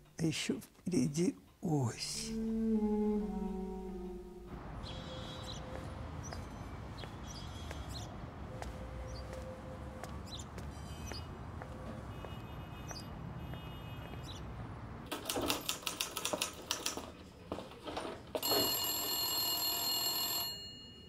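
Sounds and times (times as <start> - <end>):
bird chirps: 4.8 - 8.1
heel steps: 5.7 - 12.5
manual typewriter clacking: 15.1 - 17.2.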